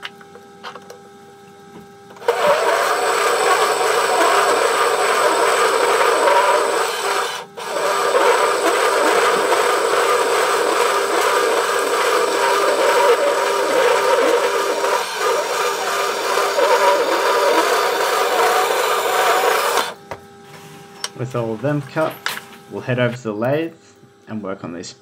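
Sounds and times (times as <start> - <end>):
motor hum: 0.0 - 24.2
band saw cutting steel: 2.2 - 20.0.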